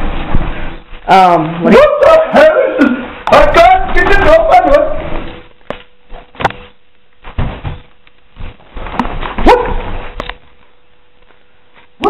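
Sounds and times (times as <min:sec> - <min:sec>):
knocking and scuffing on door: 0:07.2 - 0:10.1.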